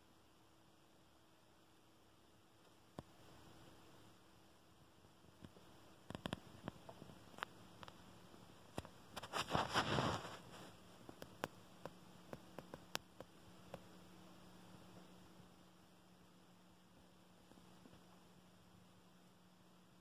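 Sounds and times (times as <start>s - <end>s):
short rustle: 9.1s - 10.9s.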